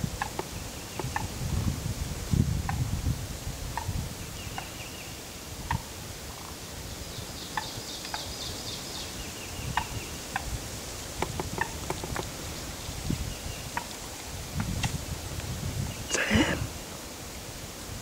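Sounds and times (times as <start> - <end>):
turkey calls: 0.2 - 1.3, 3.7 - 5.0, 5.6 - 6.6, 7.4 - 8.4, 9.5 - 10.6, 11.2 - 12.4, 13.5 - 14.9
rapid songbird chirps: 0.2 - 1.4, 3.8 - 5.8, 6.9 - 15.0.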